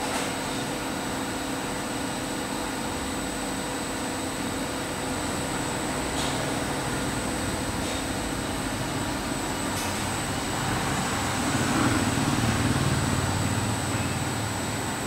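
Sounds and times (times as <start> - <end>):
coffee roaster machine hum: 0.0 - 15.0.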